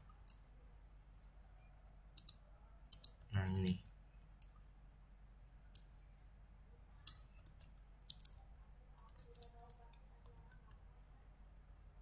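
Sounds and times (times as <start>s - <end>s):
faint low hum: 0.0s - 12.0s
mouse and keyboard clicks: 2.2s - 3.8s, 7.0s - 8.4s, 9.0s - 10.8s.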